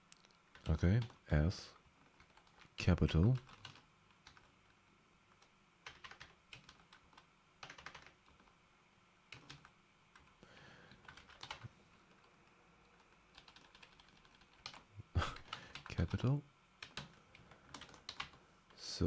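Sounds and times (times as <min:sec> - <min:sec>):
faint keyboard typing: 0:00.1 - 0:08.6, 0:09.3 - 0:18.9.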